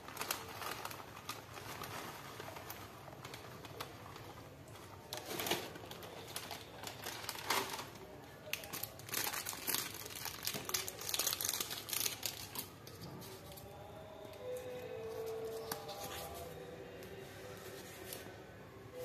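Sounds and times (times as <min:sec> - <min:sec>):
plastic bag crinkling: 0:00.0 - 0:13.9.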